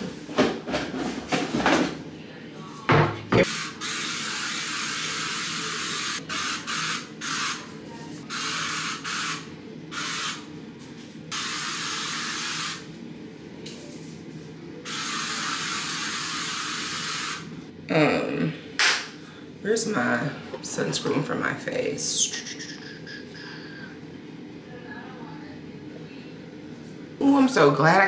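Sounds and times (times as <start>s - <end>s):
aerosol spray hissing: 3.4s - 7.6s, 8.3s - 10.4s, 11.3s - 12.8s, 14.9s - 17.5s.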